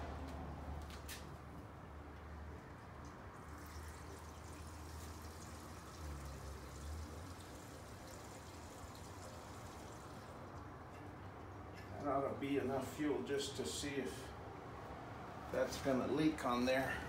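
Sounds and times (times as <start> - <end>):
fuel trickling into tank: 2.1 - 14.9.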